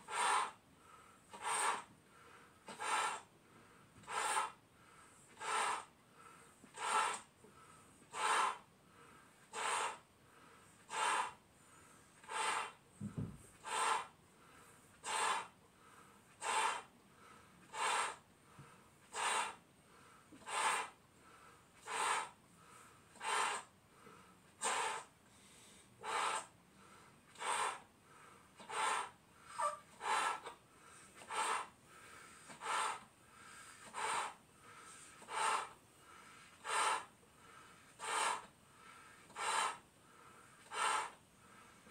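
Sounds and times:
person blowing up a balloon: 0.0 - 0.6, 1.3 - 1.9, 2.6 - 3.3, 4.0 - 4.6, 5.3 - 5.9, 6.7 - 7.3, 8.1 - 8.7, 9.4 - 10.0, 10.8 - 11.4, 12.2 - 14.2, 14.9 - 15.6, 16.3 - 16.9, 17.6 - 18.2, 19.0 - 19.6, 20.3 - 21.0, 21.8 - 22.4, 23.1 - 23.7, 24.5 - 25.2, 26.0 - 26.6, 27.3 - 27.9, 28.6 - 31.8, 32.5 - 34.4, 35.0 - 35.8, 36.5 - 37.2, 37.9 - 38.5, 39.2 - 39.8, 40.6 - 41.2.

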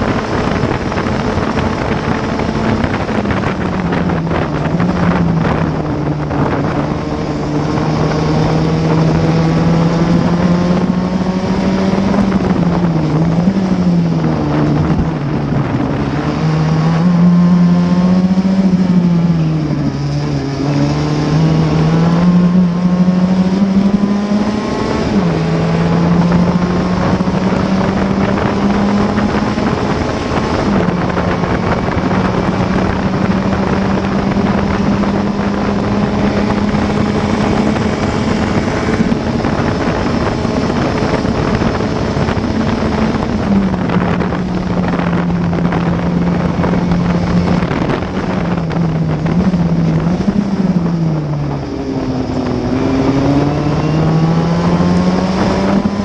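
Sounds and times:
racing car engine: 0.0 - 56.0.

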